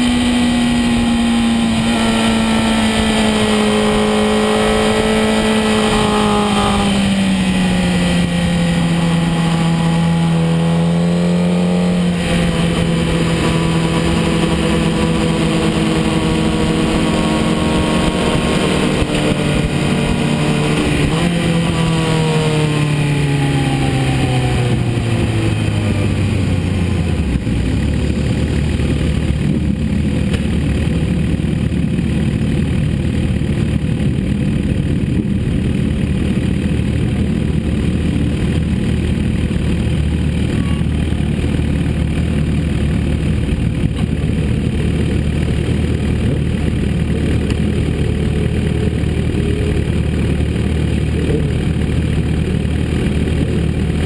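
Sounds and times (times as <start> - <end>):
motorcycle engine: 0.0 - 54.0.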